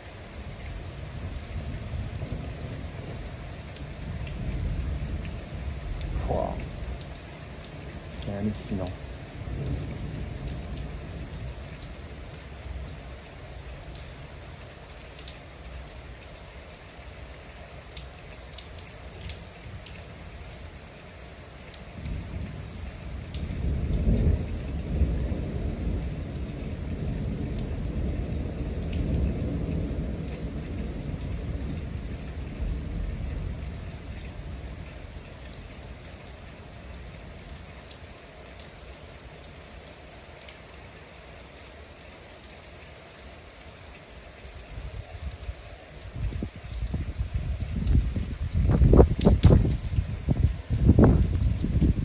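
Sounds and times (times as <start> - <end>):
heavy rain falling: 0.0 - 52.0
deep thunder rumbling: 23.4 - 31.9.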